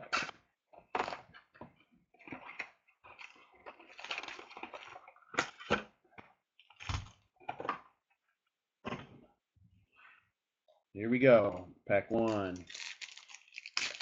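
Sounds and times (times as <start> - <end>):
card packs rustling and crinkling: 12.1 - 14.0.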